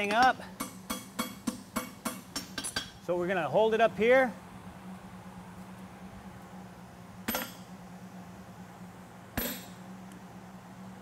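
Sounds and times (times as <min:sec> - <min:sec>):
hammer striking hot metal: 0:00.0 - 0:03.0
steady low hum: 0:00.0 - 0:11.0.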